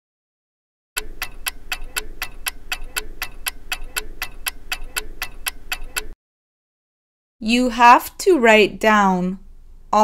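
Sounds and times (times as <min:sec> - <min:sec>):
clock ticking: 0:01.0 - 0:06.2.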